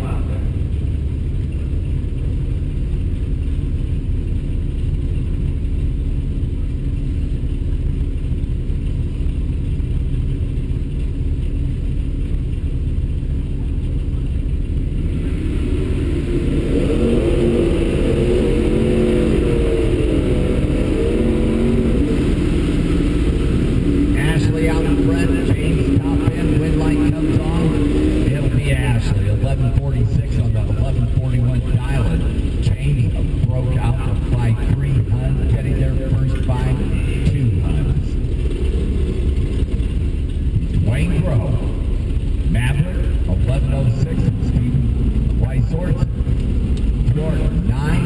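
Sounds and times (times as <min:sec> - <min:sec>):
car engine idling: 0:00.0 - 0:48.0
wavering engine note: 0:00.0 - 0:48.0.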